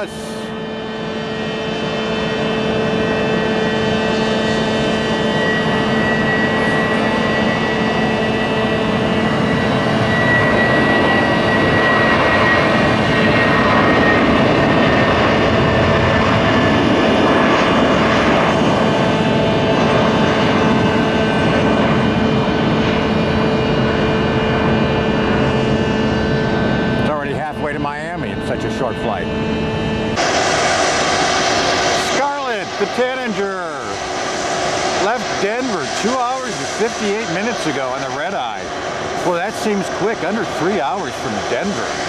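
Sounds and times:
jet engines roaring: 0.0s - 42.0s.

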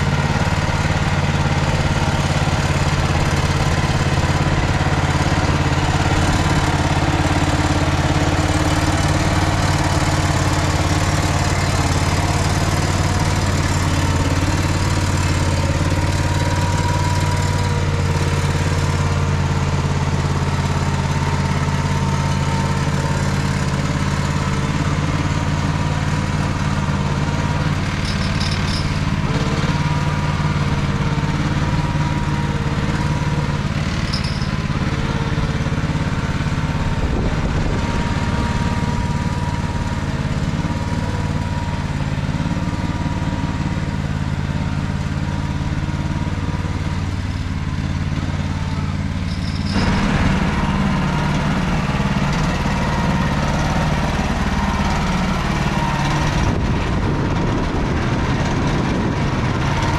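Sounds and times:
walking tractor engine ploughing: 0.0s - 59.9s.

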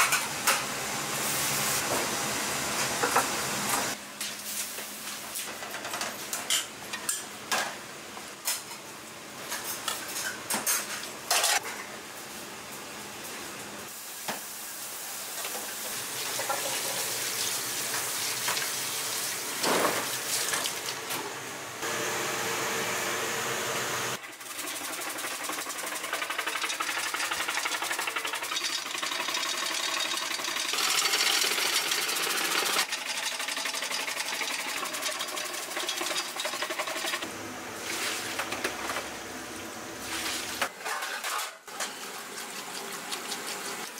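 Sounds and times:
electric vegetable shredder running: 21.8s - 37.7s.

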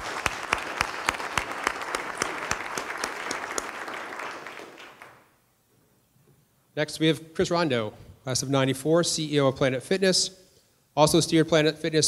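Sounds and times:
audience applauding: 0.0s - 5.3s
sharp close claps: 0.0s - 5.3s.

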